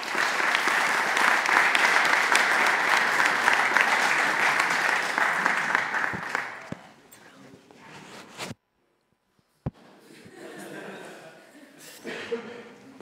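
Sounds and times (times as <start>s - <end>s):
audience applause: 0.0s - 7.0s.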